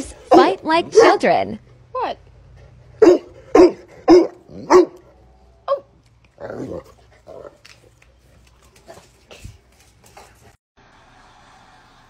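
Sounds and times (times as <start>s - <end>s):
large dog barking: 3.0s - 5.1s
dogs growling while playing: 6.4s - 7.8s.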